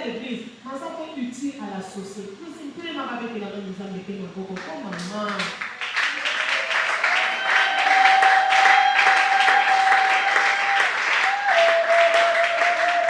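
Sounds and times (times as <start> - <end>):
congregation applauding: 4.9 - 13.0.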